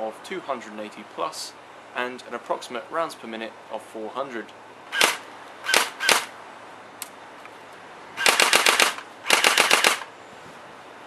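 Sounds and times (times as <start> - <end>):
airsoft rifle firing: 4.9 - 6.3, 8.2 - 10.1.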